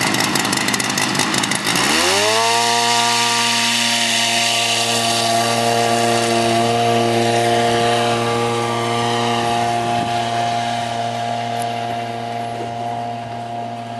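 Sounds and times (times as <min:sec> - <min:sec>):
small aircraft engine and propeller: 0:00.0 - 0:13.9.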